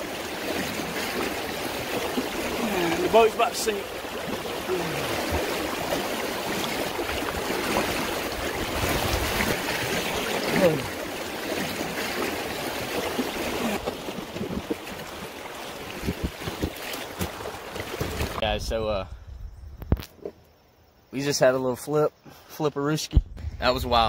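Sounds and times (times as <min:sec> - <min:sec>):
loud splash: 0:00.0 - 0:15.2
river water rushing and splashing: 0:00.0 - 0:18.4.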